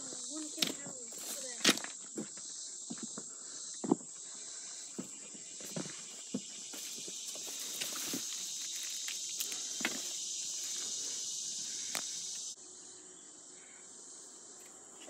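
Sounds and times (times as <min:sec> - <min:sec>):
rustling undergrowth: 0:00.0 - 0:03.2, 0:04.2 - 0:12.6
footsteps: 0:00.0 - 0:04.1, 0:04.9 - 0:12.2
insect chorus: 0:00.0 - 0:15.0.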